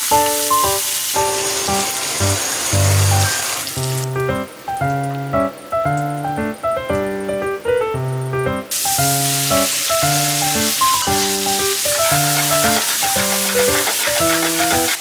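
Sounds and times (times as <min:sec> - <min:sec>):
food sizzling in a pan: 0:00.0 - 0:04.3, 0:08.7 - 0:15.0
background music: 0:00.0 - 0:15.0.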